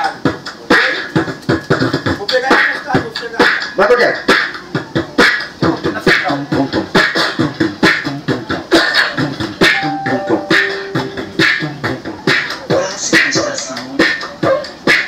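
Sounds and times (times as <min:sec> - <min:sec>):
beatboxing through amplifier: 0:00.0 - 0:15.0
short held tones: 0:09.7 - 0:11.5.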